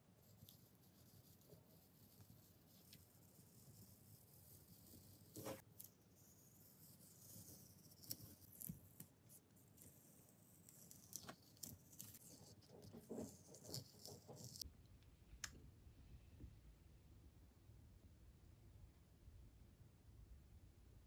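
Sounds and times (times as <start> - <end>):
low room hum: 0.0 - 21.0
masking tape peeling off paper: 6.5 - 14.6.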